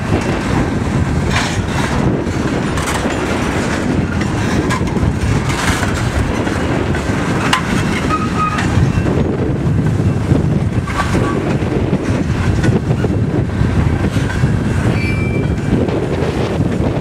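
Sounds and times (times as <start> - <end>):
clickety-clack over rail joints: 0.0 - 17.0
train wheels rumbling on rails: 0.0 - 17.0
thin wheel squeal: 8.0 - 9.0, 14.9 - 15.6.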